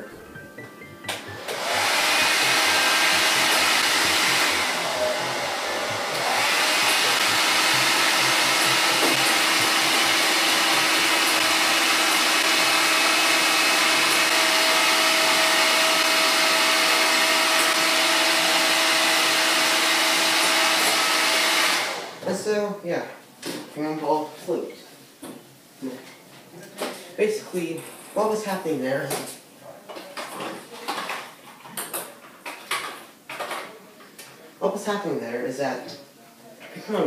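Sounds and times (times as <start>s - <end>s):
hair dryer blowing: 1.2s - 22.2s.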